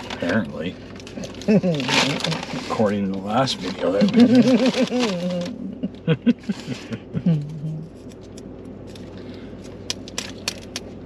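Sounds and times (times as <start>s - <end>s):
paper packaging crinkling: 0.0s - 2.8s, 3.4s - 5.6s
wordless voice: 1.7s - 5.4s.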